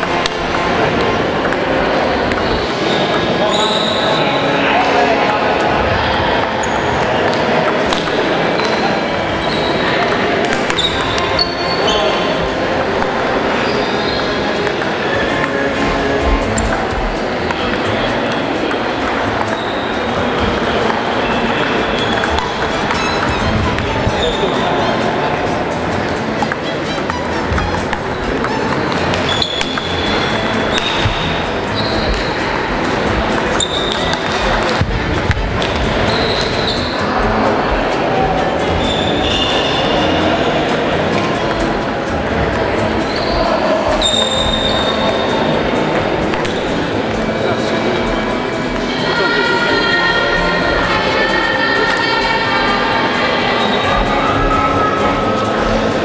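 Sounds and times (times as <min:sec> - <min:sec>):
table tennis balls clicking: 0:00.0 - 0:03.4, 0:05.3 - 0:11.6, 0:12.4 - 0:36.9, 0:39.3 - 0:47.3
high squeaking tones: 0:00.0 - 0:04.6, 0:05.7 - 0:56.0
sports hall din: 0:00.0 - 0:56.0
short high squeaks: 0:42.9 - 0:45.3.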